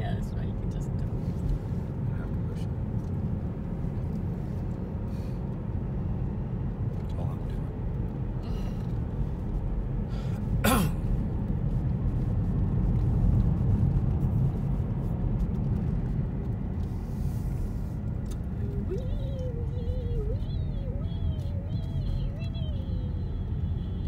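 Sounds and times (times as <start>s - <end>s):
tyre and road noise in car: 0.0s - 24.0s.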